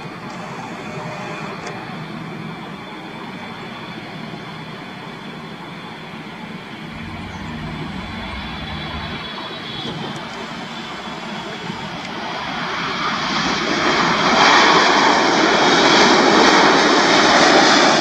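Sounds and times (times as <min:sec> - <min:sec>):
jet engine rushing noise: 0:06.8 - 0:10.3
deep low rumble: 0:06.9 - 0:10.4.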